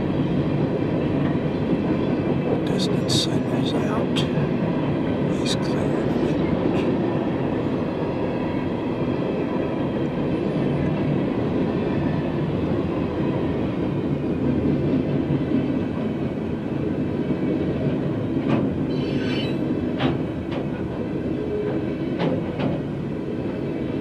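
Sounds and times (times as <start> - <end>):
train wheels rumbling on rails: 0.0 - 24.0
train cars clanking: 17.8 - 23.1.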